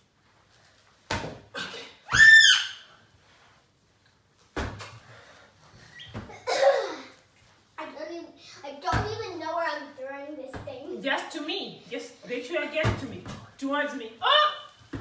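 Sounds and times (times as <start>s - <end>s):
punch balloon thumps: 4.6s - 4.9s, 8.9s - 9.2s.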